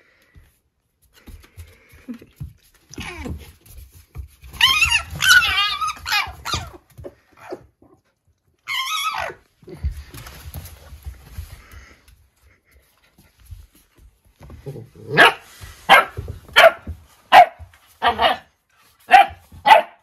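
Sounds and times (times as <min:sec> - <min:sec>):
scuffling on the floor: 0:00.0 - 0:07.6, 0:09.6 - 0:19.8
fox whining and yipping: 0:04.5 - 0:07.7, 0:08.6 - 0:09.5.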